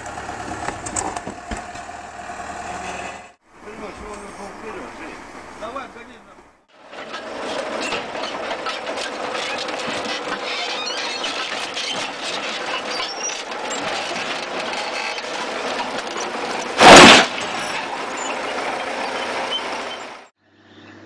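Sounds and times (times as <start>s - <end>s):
diesel engine running: 0.0s - 21.0s
loud crash: 16.8s - 17.8s.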